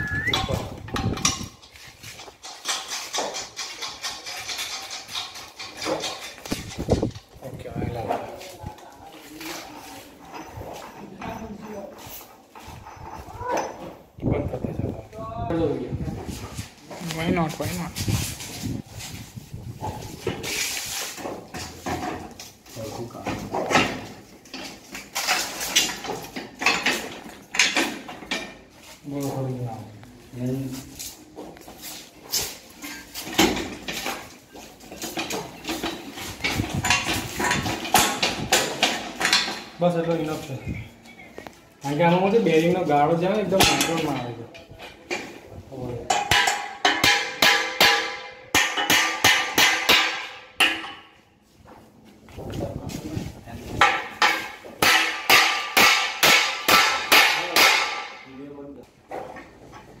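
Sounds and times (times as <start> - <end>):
metal clanks and knocks: 0.3 - 8.4, 21.1 - 28.8, 32.3 - 40.3, 43.4 - 51.8, 53.7 - 58.3
hammer strikes on metal: 46.1 - 51.1, 53.8 - 58.3.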